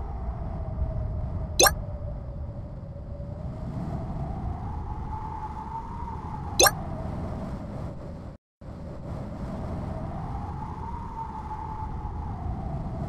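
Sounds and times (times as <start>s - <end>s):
wind whistling and howling: 0.0s - 13.0s.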